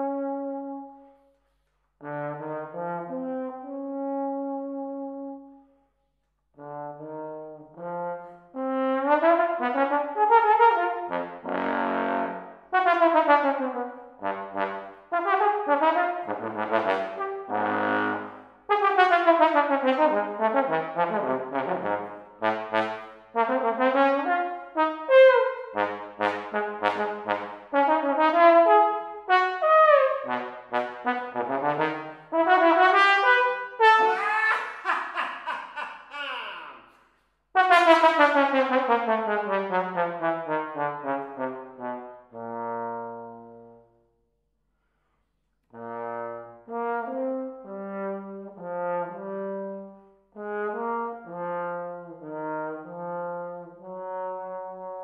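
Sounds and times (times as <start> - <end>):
trombone playing: 0.0 - 1.0, 2.0 - 5.5, 6.6 - 34.5, 37.6 - 43.8, 45.8 - 55.0
person laughing loudly: 34.0 - 36.9.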